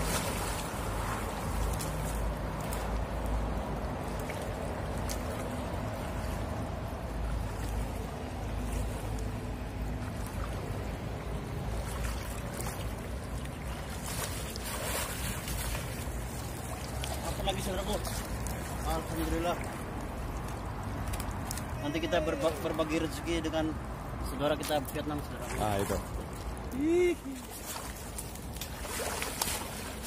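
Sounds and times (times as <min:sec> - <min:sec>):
net sweeping through water: 0:00.0 - 0:02.9, 0:13.8 - 0:17.2, 0:27.4 - 0:30.0
stream water splashing: 0:00.0 - 0:30.0.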